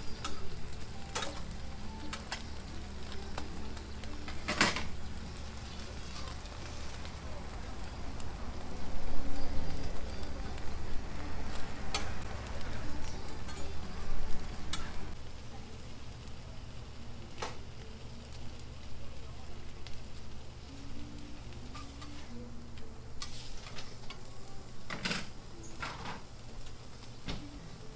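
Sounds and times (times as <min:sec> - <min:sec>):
steady low hum: 0:00.0 - 0:25.7
food sizzling on a griddle: 0:00.0 - 0:27.9.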